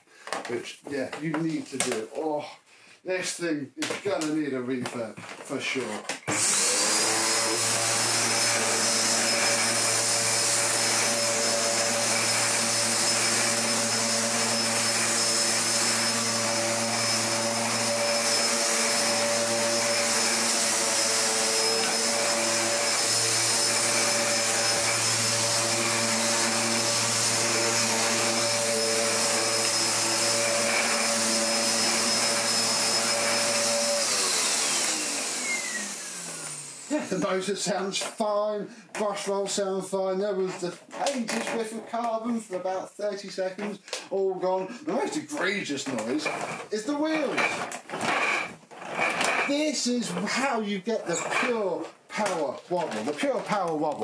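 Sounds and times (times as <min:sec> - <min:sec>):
upright vacuum cleaner running: 0:06.3 - 0:38.2, 0:44.2 - 0:53.6.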